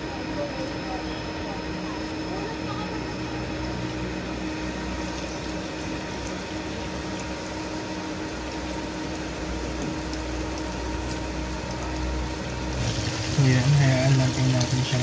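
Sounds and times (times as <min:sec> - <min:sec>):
food deep-frying in oil: 0:00.0 - 0:15.0.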